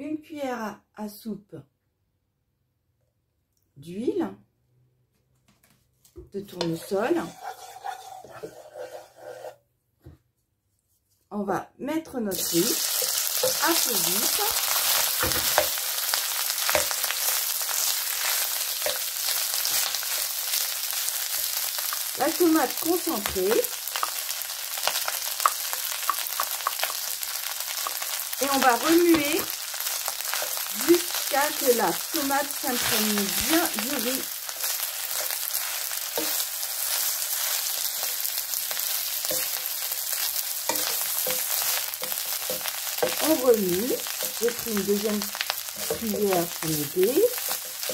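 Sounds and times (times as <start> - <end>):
spatula scraping pan: 6.5 - 9.6, 12.4 - 21.6, 27.8 - 47.9
rice frying in oil: 12.3 - 47.9.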